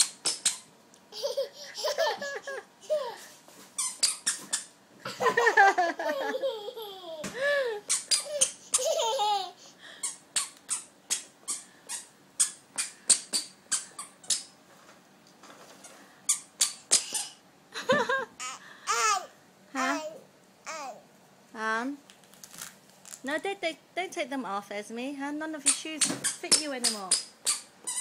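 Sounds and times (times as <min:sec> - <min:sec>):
squeaky shoes squeaking: 0:00.0 - 0:00.7, 0:03.6 - 0:04.7, 0:07.9 - 0:08.8, 0:10.0 - 0:14.6, 0:15.8 - 0:17.4, 0:25.6 - 0:28.0
child laughing and squealing: 0:01.1 - 0:03.3, 0:05.3 - 0:09.6.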